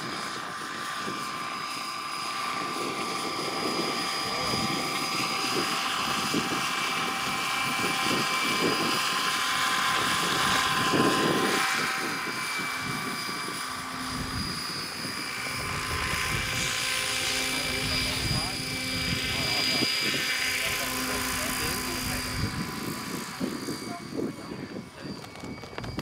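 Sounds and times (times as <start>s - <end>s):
model helicopter motor whine: 0.0s - 26.0s
rotor blades rushing: 0.0s - 26.0s.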